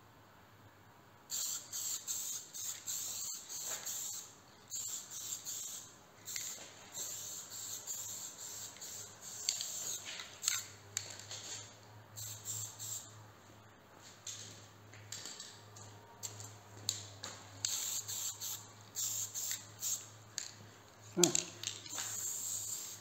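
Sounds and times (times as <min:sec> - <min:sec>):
spray paint hissing: 0:01.3 - 0:10.7, 0:12.2 - 0:13.1, 0:17.6 - 0:20.1, 0:21.9 - 0:23.0.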